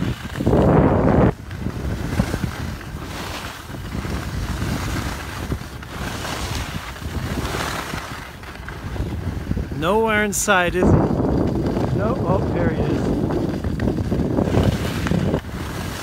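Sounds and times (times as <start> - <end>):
skis hissing over snow: 0.0 - 16.0
wind rushing over microphone: 0.0 - 16.0.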